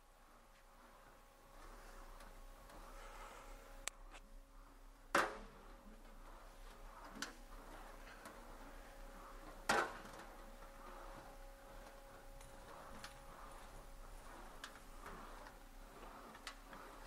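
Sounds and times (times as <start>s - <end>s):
faint steady hum: 0.0s - 17.0s
sheet metal rolling: 4.7s - 17.0s.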